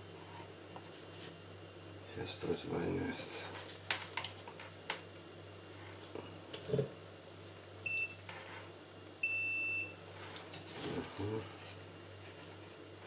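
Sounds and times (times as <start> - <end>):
multimeter beeping: 7.9 - 8.2, 9.2 - 9.9.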